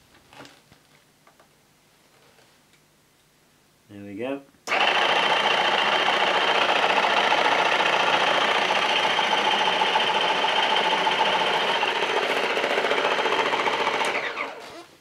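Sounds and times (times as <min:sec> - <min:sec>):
floor cleaner motor humming: 0:04.7 - 0:14.8.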